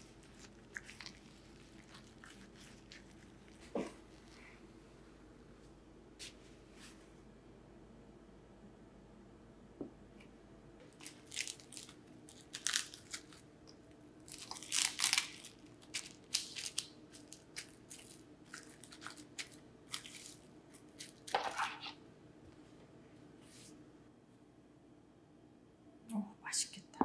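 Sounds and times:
crunching chewing of radish: 0.0 - 4.7, 10.9 - 22.0.

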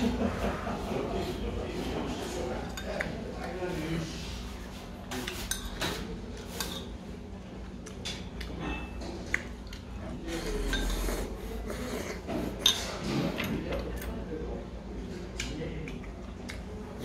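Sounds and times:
person slurping and chewing: 10.2 - 13.4.

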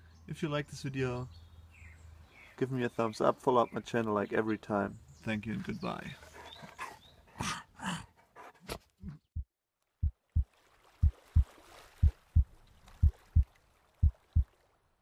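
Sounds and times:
dog huffing: 6.2 - 9.3
heartbeat thumps: 9.0 - 14.5.

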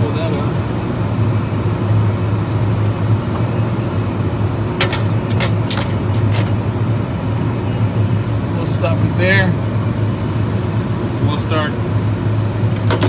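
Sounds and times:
low machinery hum: 0.0 - 13.0
hand tools clinking: 4.2 - 6.5.

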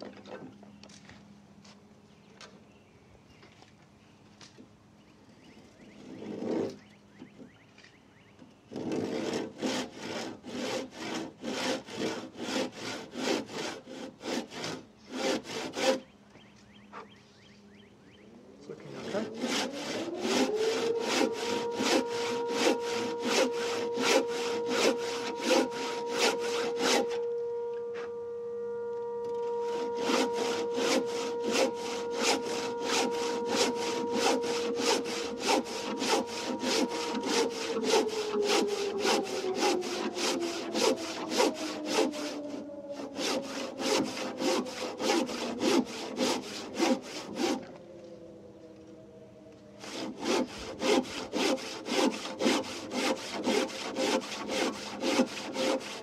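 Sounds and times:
background hum: 0.0 - 56.0
handsaw cutting timber: 6.0 - 6.8, 8.7 - 16.1, 18.7 - 28.2, 28.8 - 47.8, 49.8 - 56.0.

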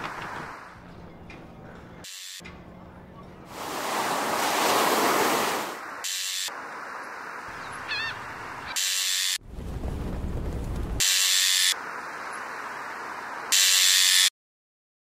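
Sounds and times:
sea wave washing in: 3.5 - 8.7
gull call: 7.5 - 8.9.

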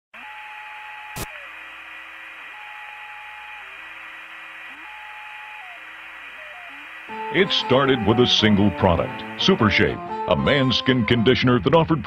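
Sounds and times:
radio hiss: 0.2 - 12.0.

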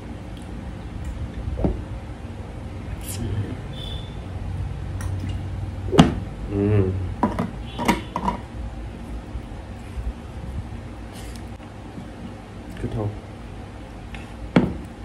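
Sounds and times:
knocks on tabletop: 14.6 - 14.8.

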